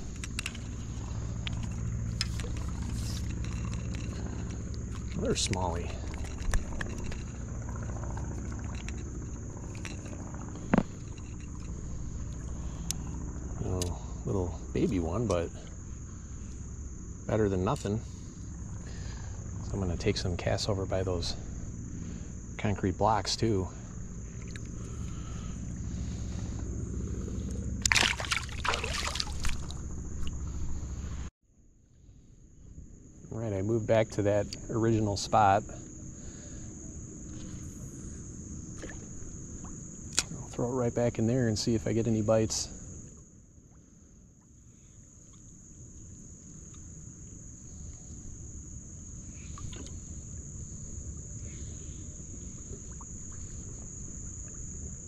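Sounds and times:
low rumble: 0.0s - 23.0s, 23.6s - 31.3s
high insect trill: 0.0s - 55.0s
low hum: 0.0s - 55.0s
water splashing: 27.8s - 30.4s.

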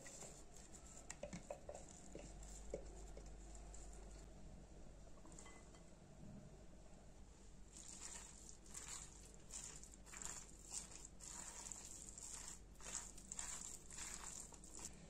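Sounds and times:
spoon scraping bowl: 7.8s - 14.9s.

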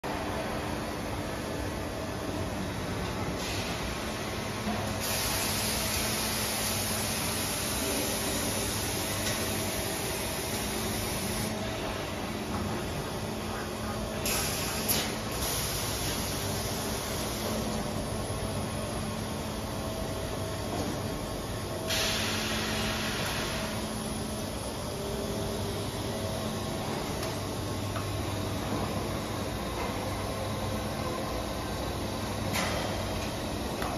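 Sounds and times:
machine humming and whirring: 0.1s - 33.9s
machine hiss: 4.9s - 11.6s, 14.2s - 17.7s, 21.8s - 24.5s.

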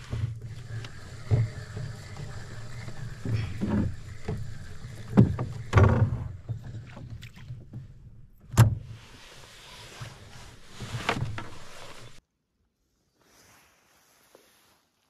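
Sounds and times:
gear knocking against hull: 0.0s - 8.7s
fishing reel cranking: 0.4s - 6.0s.

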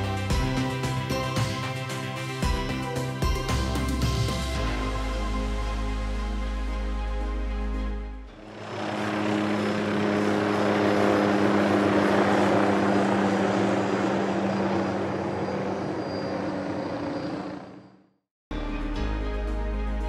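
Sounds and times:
helicopter engines and rotor: 0.0s - 5.6s, 8.3s - 18.2s.

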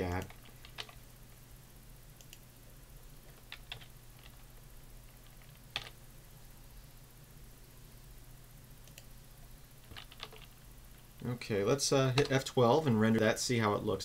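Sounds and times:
faint low hum: 0.0s - 14.0s
keyboard key presses: 9.9s - 10.5s.

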